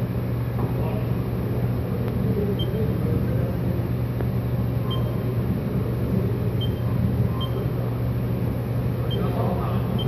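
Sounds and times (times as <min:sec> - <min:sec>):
short high beeps: 0:04.9 - 0:05.2.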